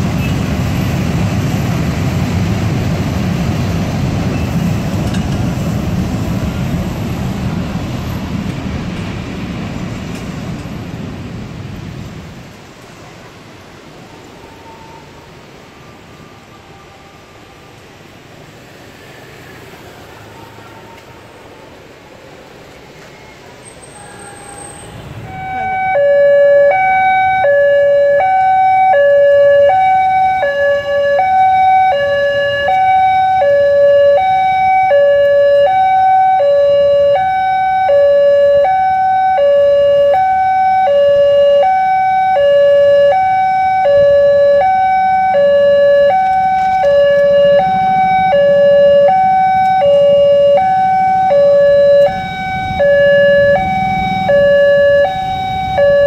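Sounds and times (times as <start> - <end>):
faint road traffic: 0.0 - 56.0
two-tone crossing alarm: 24.0 - 56.0.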